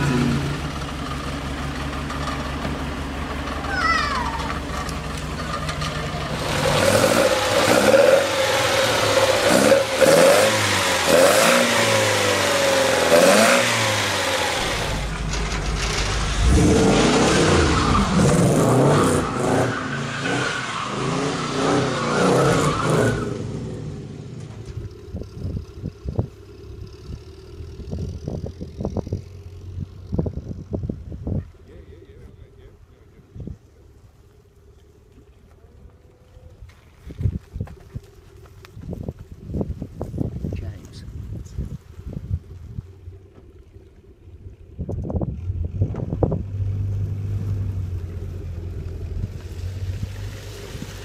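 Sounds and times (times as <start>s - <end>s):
second car engine revving hard: 0.0s - 1.0s, 6.2s - 24.3s
car engine idling and revving: 0.0s - 51.0s
wind buffeting microphone: 37.0s - 43.2s.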